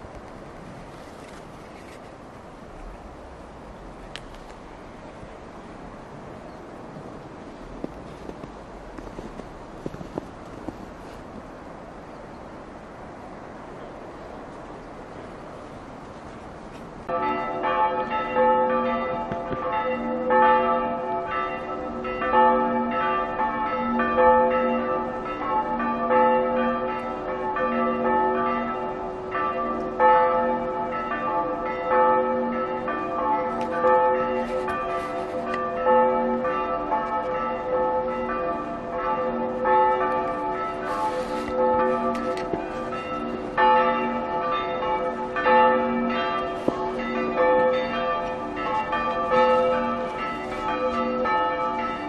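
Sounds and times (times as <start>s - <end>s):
bells chiming: 17.1s - 52.0s.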